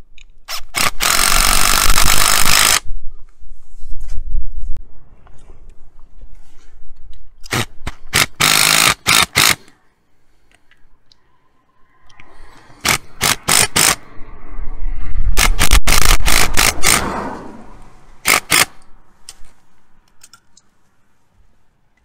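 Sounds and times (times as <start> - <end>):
impact driver hammering screws: 0.5 - 2.8, 7.5 - 9.7, 12.8 - 14.0, 15.4 - 17.0, 18.2 - 18.8.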